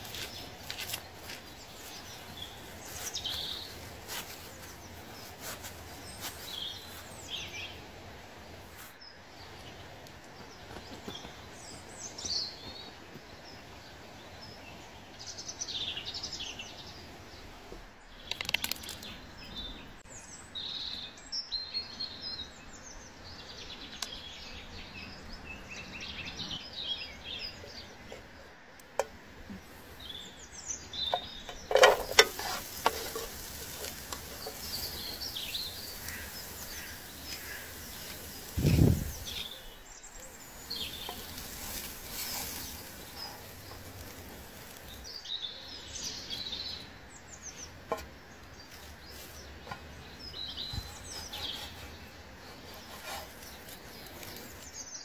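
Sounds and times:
steady outdoor hiss: 0.0 - 55.0
birds chirping and singing: 29.6 - 55.0.

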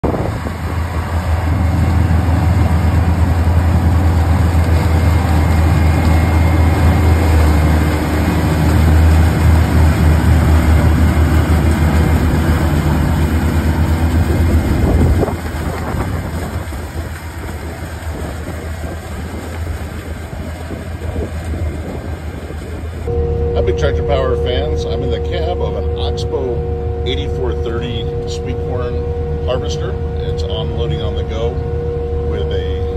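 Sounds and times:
harvester engine drone: 0.0 - 32.9
harvesting machinery noise: 0.0 - 32.9.

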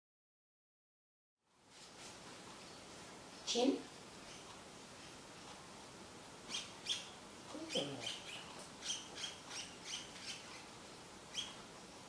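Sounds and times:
birds chirping: 2.5 - 12.0.

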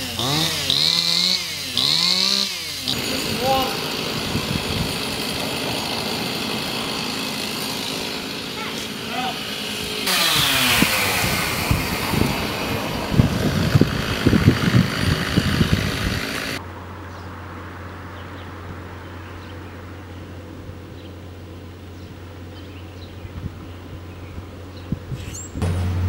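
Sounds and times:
vehicle rumble: 8.0 - 26.0.

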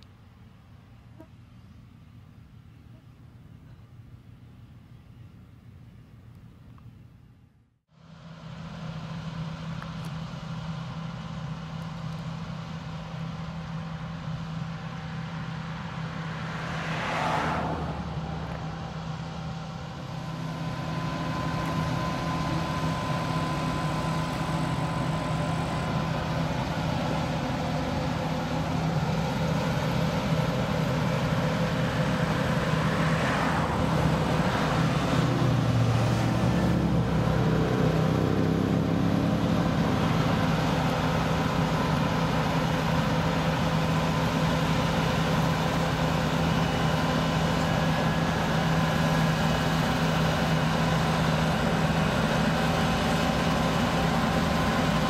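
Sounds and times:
combine harvester engine hum: 0.0 - 55.0.

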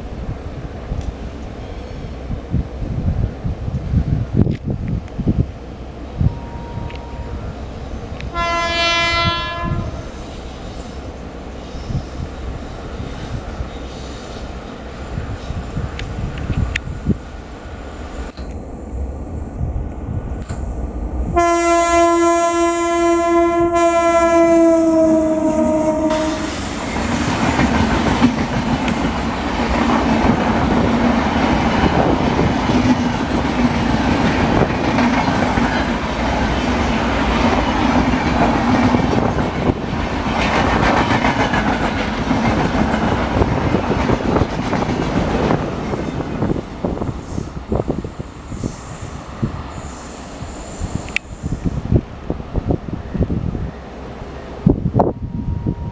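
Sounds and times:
train coaches rumbling and rattling: 0.0 - 55.9
locomotive horn blast: 8.3 - 10.2, 21.3 - 26.8.

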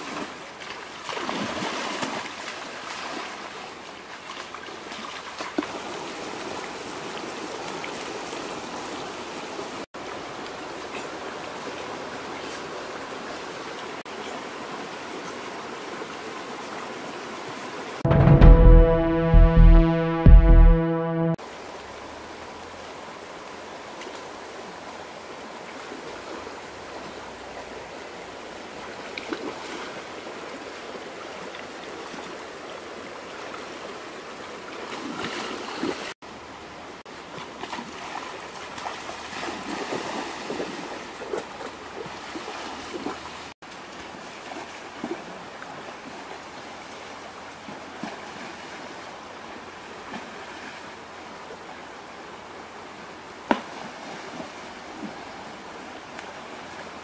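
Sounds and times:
splashing from wading: 0.0 - 3.6, 37.3 - 43.6
rocky stream flowing: 0.0 - 18.0, 21.4 - 57.0.

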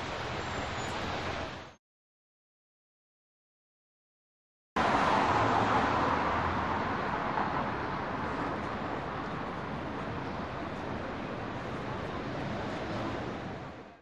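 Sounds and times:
street traffic noise: 0.0 - 1.8, 4.8 - 14.0.

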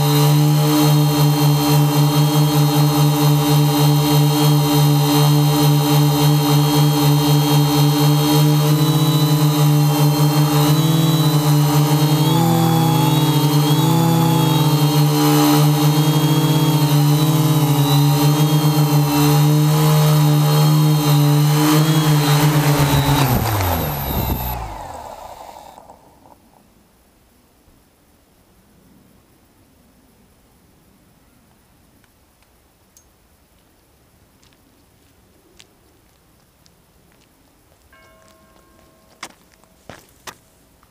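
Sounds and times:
drone motors humming: 0.1 - 26.5.

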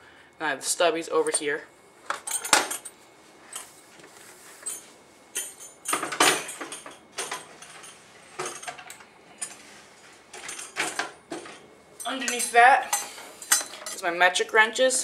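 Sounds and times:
wrenches clinking and rattling: 2.1 - 3.7, 4.6 - 9.6, 10.3 - 14.0.

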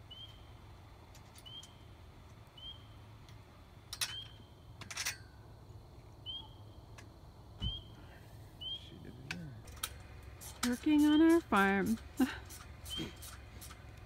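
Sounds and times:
animal chirping: 6.2 - 6.7.

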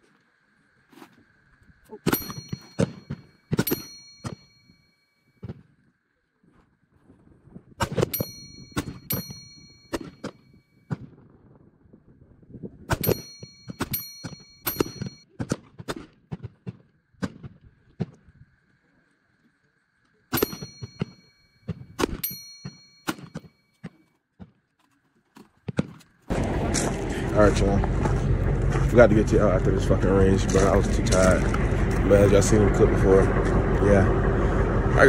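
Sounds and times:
brief metallic ring: 2.1 - 5.3, 20.3 - 21.6.

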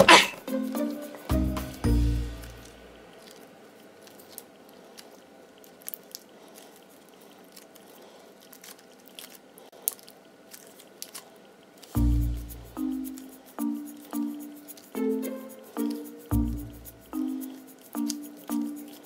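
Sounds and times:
putty crackling and popping: 2.3 - 15.0.

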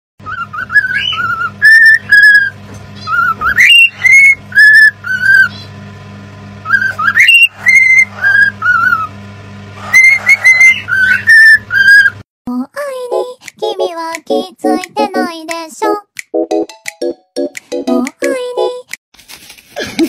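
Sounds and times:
cockatiel whistling a tune: 0.2 - 5.6, 6.6 - 9.1, 9.9 - 12.2.

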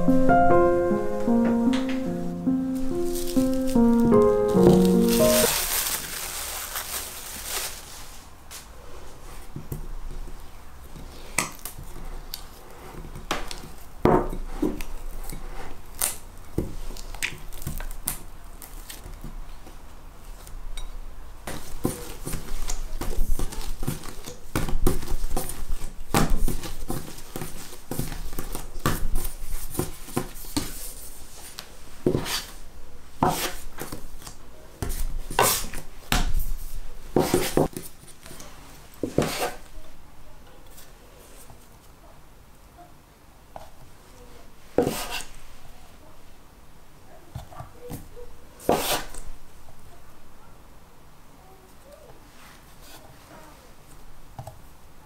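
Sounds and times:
cling film crinkling: 2.8 - 8.3.

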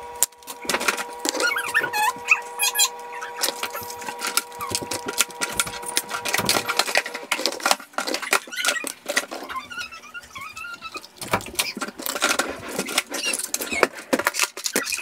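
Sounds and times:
plastic items clattering on countertop: 3.4 - 15.0.

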